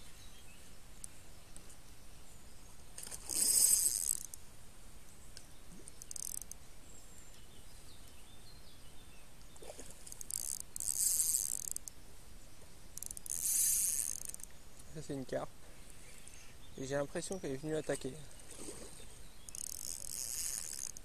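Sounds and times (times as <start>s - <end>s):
spinning reel whirring: 3.3s - 4.4s, 6.0s - 6.5s, 10.2s - 11.9s, 13.0s - 14.4s, 19.5s - 21.0s.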